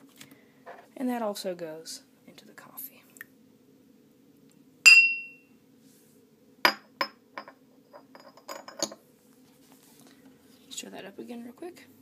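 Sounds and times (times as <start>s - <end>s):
glassware clinking: 4.9s - 5.4s, 6.7s - 9.0s.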